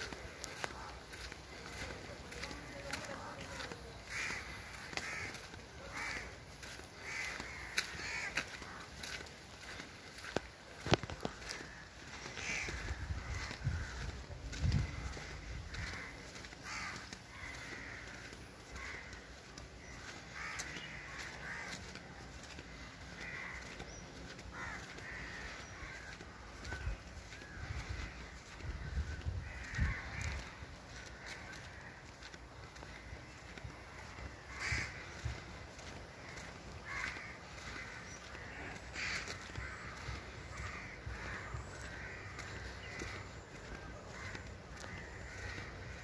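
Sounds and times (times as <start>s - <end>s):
crow cawing: 0.0s - 46.0s.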